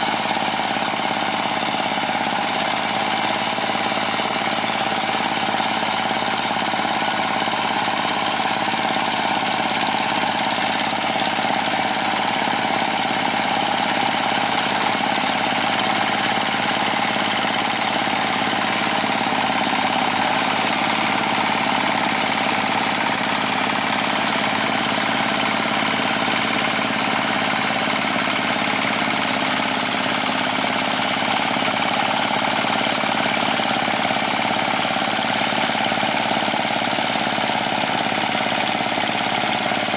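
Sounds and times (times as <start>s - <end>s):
diesel engine running under load: 0.0s - 39.9s.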